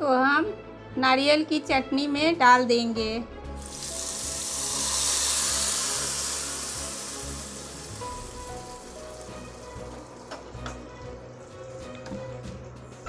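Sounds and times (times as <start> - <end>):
hot oil sizzling: 3.6 - 11.8.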